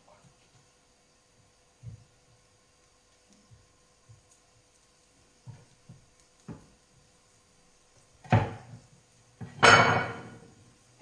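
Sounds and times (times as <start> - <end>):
knocks on wooden cutting board: 8.2 - 8.8.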